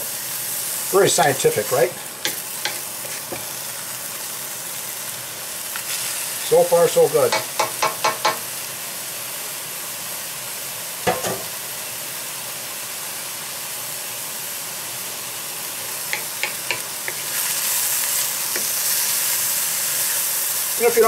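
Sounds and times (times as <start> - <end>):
vegetables sizzling in a wok: 0.0 - 21.0
spatula knocking against wok: 7.3 - 8.4, 11.1 - 11.5, 16.1 - 17.2.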